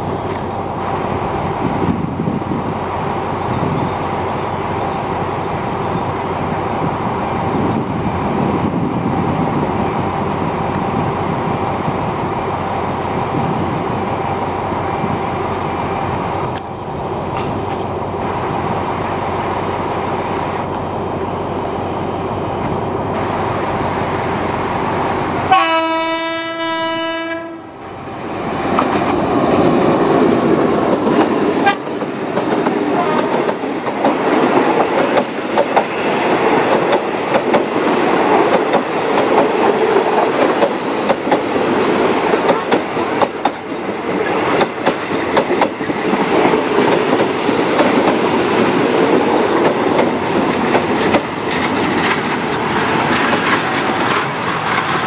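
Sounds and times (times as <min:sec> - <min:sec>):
locomotive engine and wheels rumbling: 0:00.0 - 0:55.0
locomotive horn blast: 0:25.5 - 0:27.8, 0:31.6 - 0:31.9, 0:32.9 - 0:33.4.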